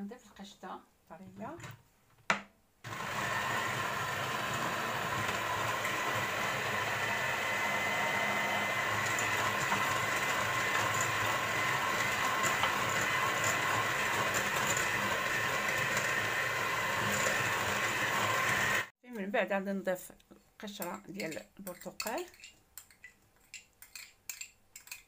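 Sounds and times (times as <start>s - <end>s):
beaters whisking batter: 2.9s - 18.9s
electric hand mixer whine: 2.9s - 18.9s.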